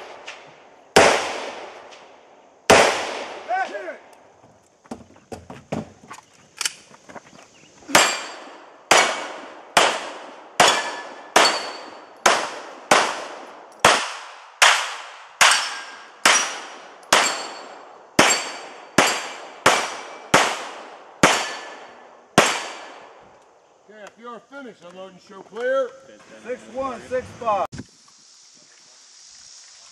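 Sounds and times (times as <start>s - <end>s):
pistol shots: 1.0s - 2.1s, 2.7s - 3.6s, 7.9s - 23.1s
steel target ringing: 7.9s - 9.2s, 10.6s - 12.0s, 17.2s - 19.3s.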